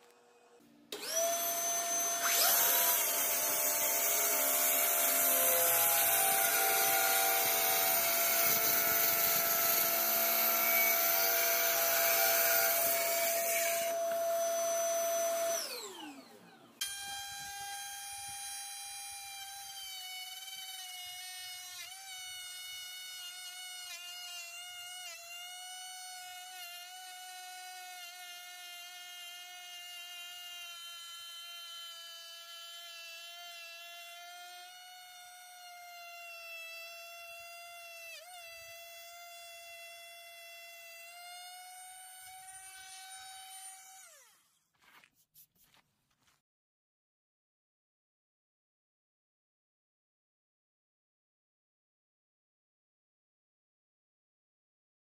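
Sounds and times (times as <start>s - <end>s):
vacuum running: 0.0s - 18.6s
track saw cutting wood: 0.0s - 44.6s
power tool shaving board edge: 0.0s - 45.0s.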